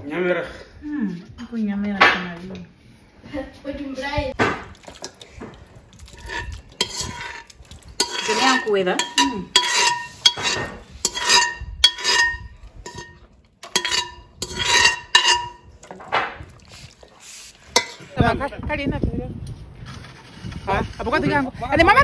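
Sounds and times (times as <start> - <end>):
metal utensil scraping metal pot: 4.7 - 18.2.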